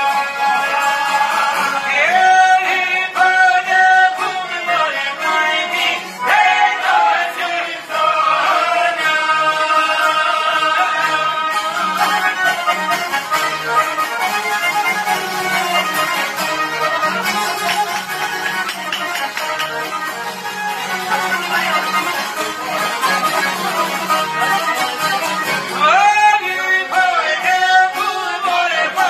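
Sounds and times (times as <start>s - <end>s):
men singing folk song: 0.0s - 13.1s, 25.7s - 29.0s
strummed long-necked lutes: 0.0s - 29.0s.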